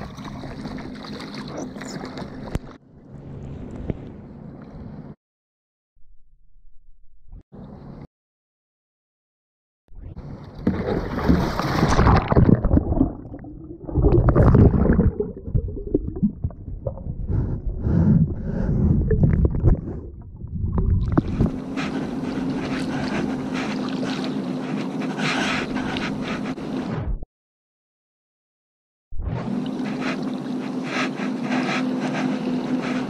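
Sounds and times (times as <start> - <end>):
muffled underwater churning: 0.0 - 2.8, 10.2 - 26.8, 29.5 - 33.0
splashing: 0.0 - 2.8, 10.6 - 17.0
underwater wash of noise: 11.0 - 21.5.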